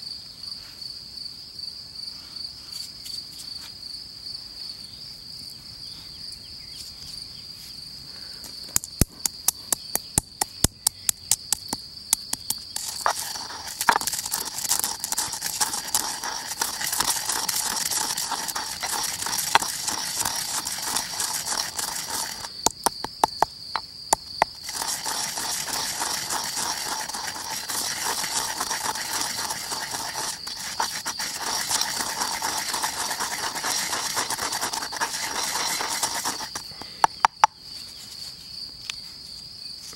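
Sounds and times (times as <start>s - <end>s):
crickets chirping: 0.0s - 39.9s
pestle grinding seeds: 8.8s - 37.5s
pestle tapping in stone mortar: 8.8s - 37.5s.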